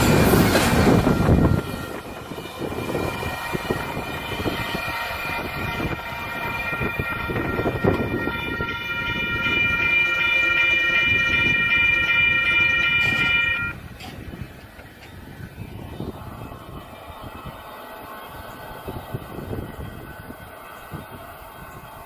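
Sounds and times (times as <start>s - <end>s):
locomotive air horn: 0.0s - 13.8s
moving train rumble: 0.0s - 22.0s.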